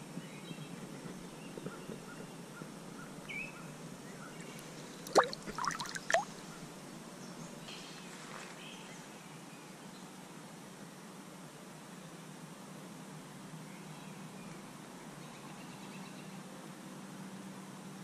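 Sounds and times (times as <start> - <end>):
water splashes: 5.0 - 6.4.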